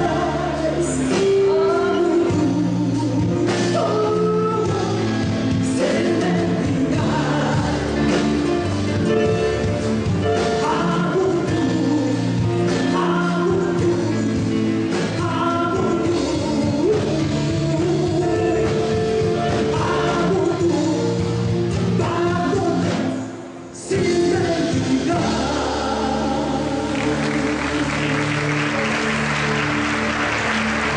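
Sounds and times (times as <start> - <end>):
woman singing: 0.0 - 8.3, 10.3 - 23.2, 23.8 - 28.5
live band playing: 0.0 - 30.9
audience applause: 26.9 - 30.9.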